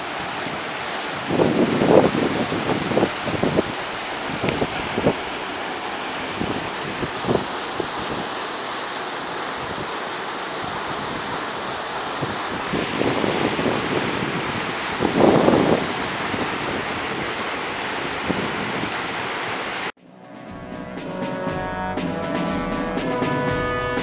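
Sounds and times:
wind buffeting microphone: 0:00.0 - 0:08.4, 0:10.6 - 0:19.3
river water rushing over rocks: 0:00.0 - 0:19.9.

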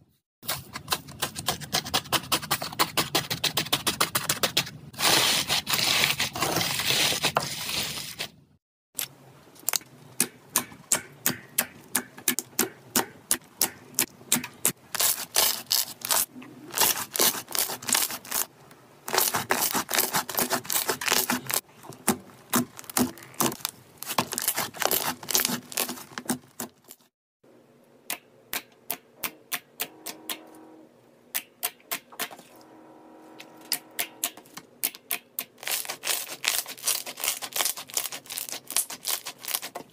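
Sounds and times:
crunchy slime crackling: 0:14.9 - 0:18.5, 0:19.1 - 0:27.0, 0:35.6 - 0:39.8.

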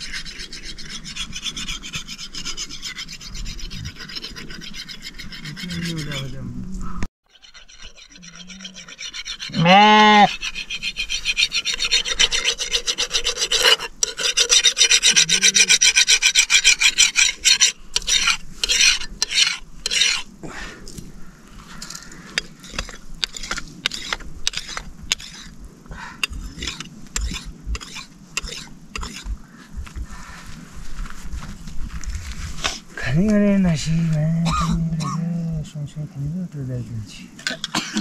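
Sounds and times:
blade rasping on sharpening stone: 0:00.0 - 0:06.3, 0:07.3 - 0:09.6, 0:10.3 - 0:20.2, 0:22.4 - 0:25.5, 0:26.2 - 0:29.3.

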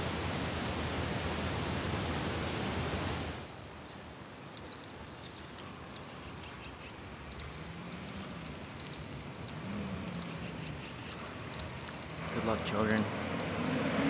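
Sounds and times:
sharp high-pitched ticks: 0:04.6 - 0:12.3.

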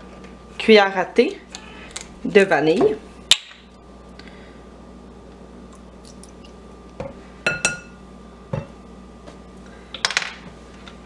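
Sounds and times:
spoon clinking against glass bowl: 0:07.5 - 0:08.0.

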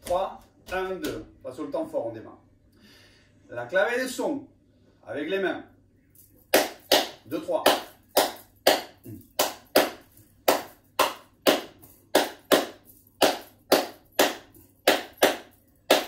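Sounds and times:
hand claps in syncopated rhythm: 0:06.5 - 0:16.0.

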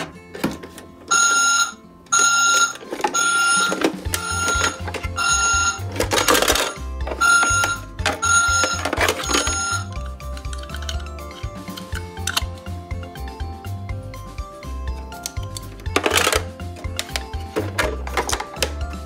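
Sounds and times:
toy reversing beep: 0:01.1 - 0:10.1
toy engine rumble: 0:02.2 - 0:12.6.

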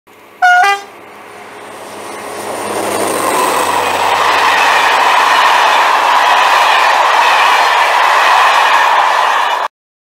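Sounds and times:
passenger train passing: 0:00.1 - 0:09.7
two-tone locomotive horn: 0:00.4 - 0:01.0.

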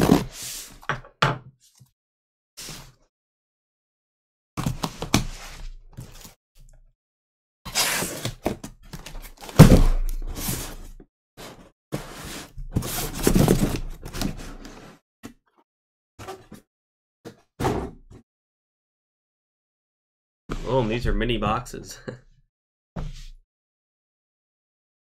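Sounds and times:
cardboard scraping and rustling: 0:07.7 - 0:15.0
cardboard box thunks on table: 0:09.4 - 0:10.7.

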